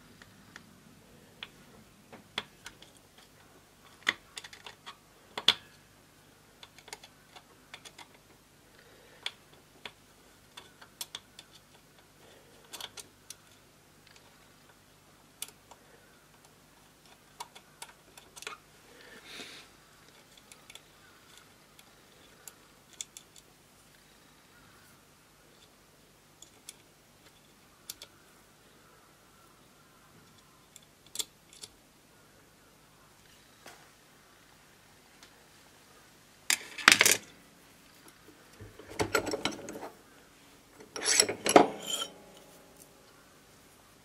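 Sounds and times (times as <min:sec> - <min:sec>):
short metal scrape: 0:40.9 - 0:42.8.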